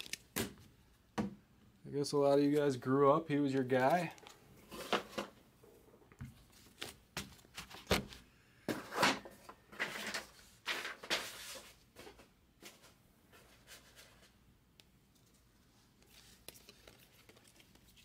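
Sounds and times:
cards being handled: 0.0s - 0.6s, 3.4s - 5.2s, 6.2s - 8.2s, 15.1s - 18.0s.

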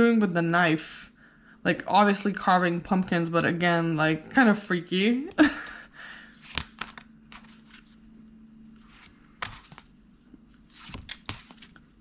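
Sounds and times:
cards clicking and rustling: 6.4s - 8.0s, 8.9s - 9.9s, 10.6s - 12.0s.

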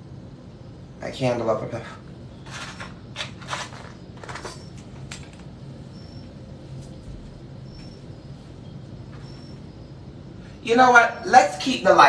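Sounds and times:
steady low hum: 0.0s - 12.0s
small objects clicking and knocking: 2.4s - 5.5s.

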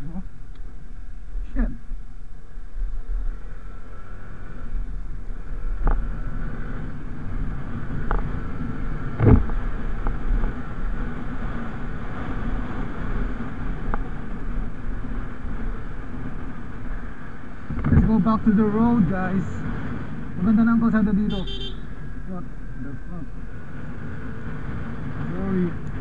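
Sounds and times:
motorcycle engine and road rumble: 0.0s - 26.0s
wind on microphone: 4.4s - 17.0s.

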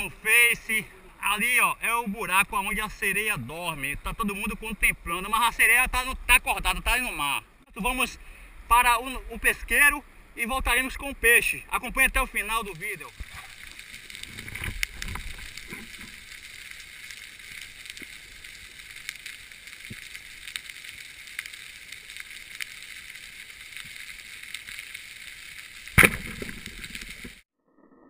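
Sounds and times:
muffled underwater hiss: 0.0s - 27.4s.

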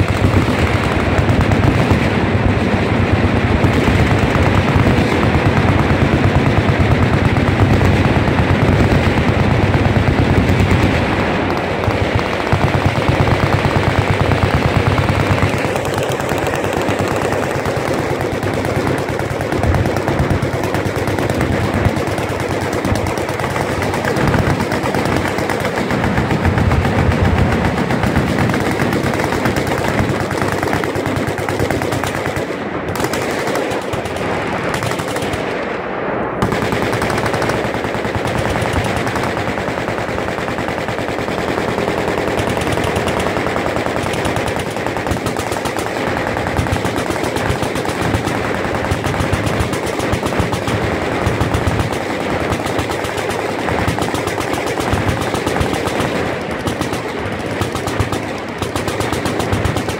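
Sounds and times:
machine guns firing: 0.0s - 59.9s.

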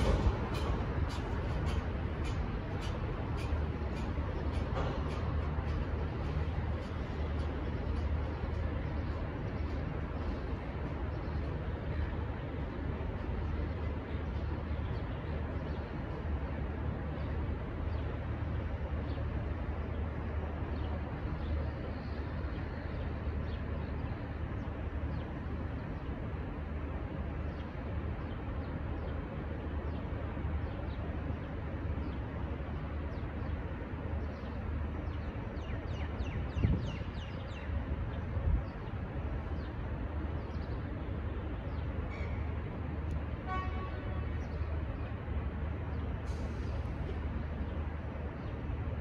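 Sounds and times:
freight train rumbling: 0.0s - 49.0s
distant train horn toot: 43.4s - 44.6s.

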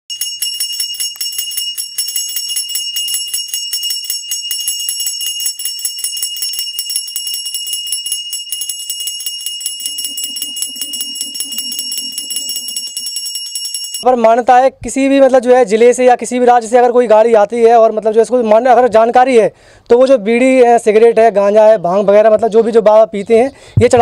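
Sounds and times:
brass hand bell ringing rapidly: 0.1s - 14.1s.

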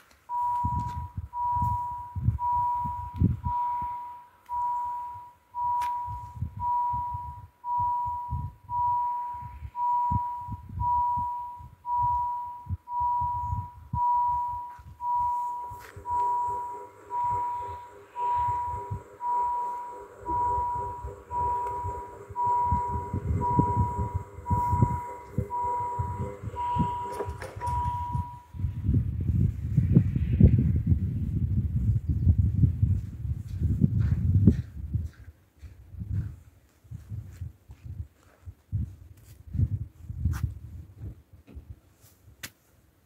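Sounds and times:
level crossing bell ringing: 0.3s - 28.6s
barrier motor hum: 0.3s - 28.7s.

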